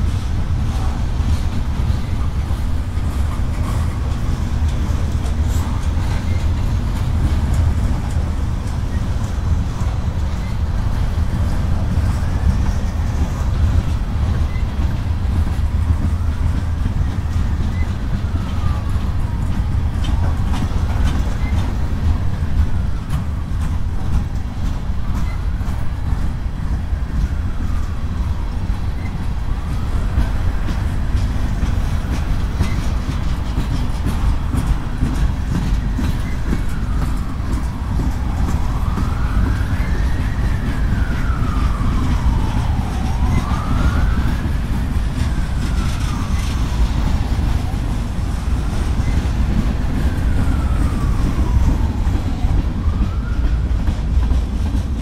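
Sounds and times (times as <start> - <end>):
freight train rolling past: 0.0 - 55.0
siren wailing: 16.0 - 21.7, 34.0 - 54.1.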